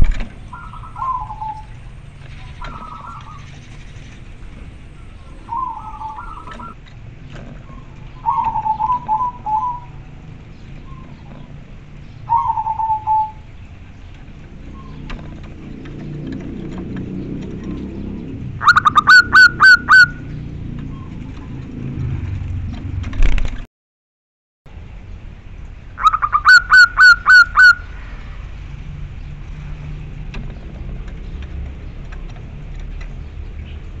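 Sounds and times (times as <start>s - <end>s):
dove trilling coo: 0.0s - 13.6s, 14.5s - 21.9s, 26.0s - 28.0s.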